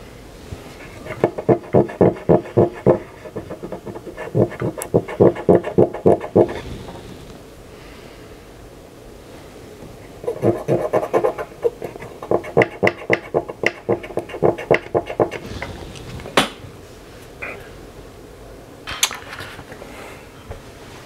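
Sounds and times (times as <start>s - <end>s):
scrubbing circuit board: 1.0s - 6.6s, 10.2s - 15.6s.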